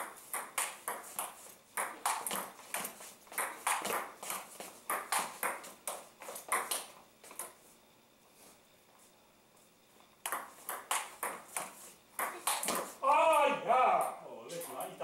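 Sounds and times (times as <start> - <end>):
table tennis ball clicking: 0.3 - 4.1, 10.2 - 11.4.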